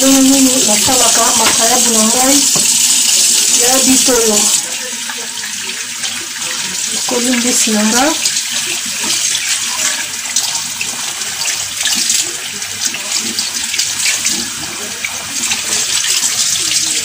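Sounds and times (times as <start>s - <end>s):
faucet running into sink: 0.0s - 17.0s.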